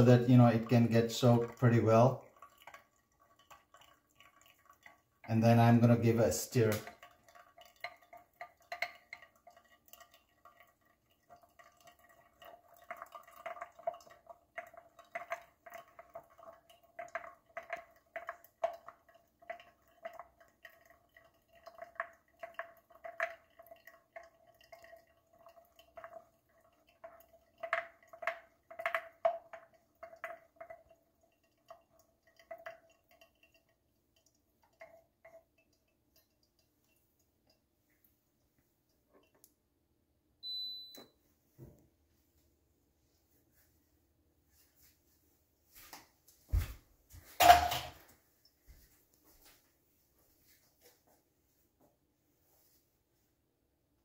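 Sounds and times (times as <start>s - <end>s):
faint steady tone: 40.4s - 41.4s.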